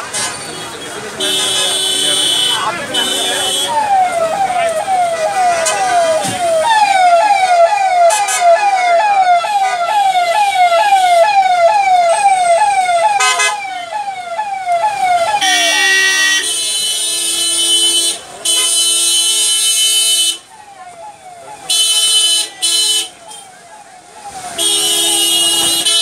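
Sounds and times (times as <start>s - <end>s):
car horn toot: 0.8s - 3.9s, 13.2s - 13.6s, 15.4s - 20.4s, 24.6s - 26.0s
electronic vehicle siren wailing: 3.0s - 16.4s, 20.4s - 26.0s.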